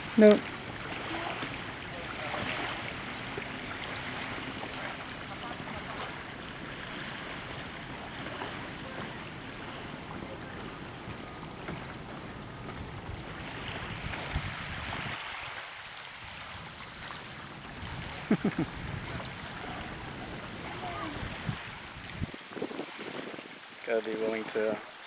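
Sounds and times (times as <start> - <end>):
small waves lapping: 0.0 - 25.0
wind on microphone: 3.7 - 23.7.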